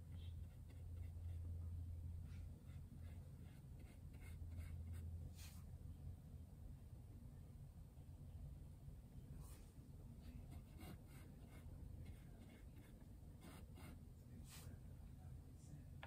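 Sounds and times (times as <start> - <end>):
low room hum: 0.0 - 16.0
paintbrush strokes on canvas: 2.3 - 5.7, 9.4 - 14.8.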